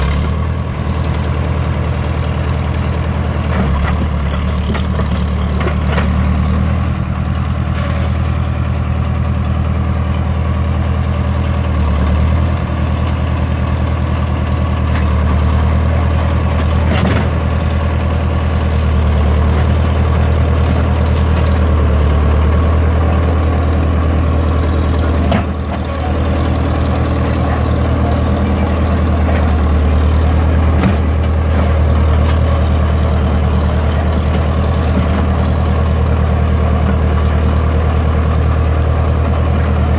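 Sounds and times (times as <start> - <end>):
dozer blade pushing dirt: 0.0 - 39.9
dozer diesel engine running: 0.0 - 39.9.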